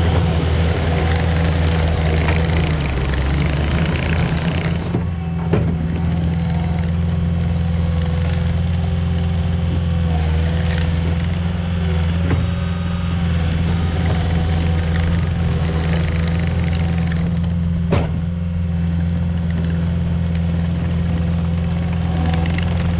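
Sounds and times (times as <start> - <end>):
tracks driving on gravel: 0.0 - 12.0, 13.4 - 22.9
diesel engine running: 0.0 - 22.9.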